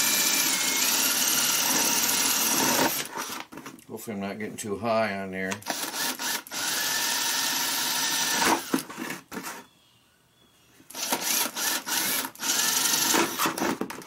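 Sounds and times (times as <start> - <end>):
drill boring through plastic: 0.0 - 3.5, 5.6 - 8.9, 10.9 - 13.8.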